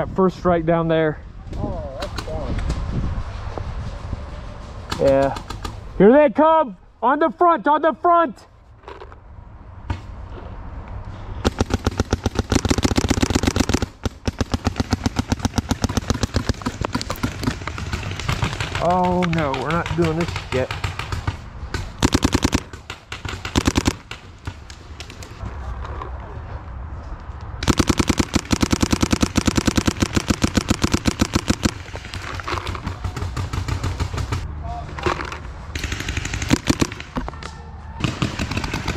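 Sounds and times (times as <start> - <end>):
paintball marker rapid firing: 11.4 - 25.2, 27.6 - 34.4, 35.8 - 37.2, 38.0 - 38.9.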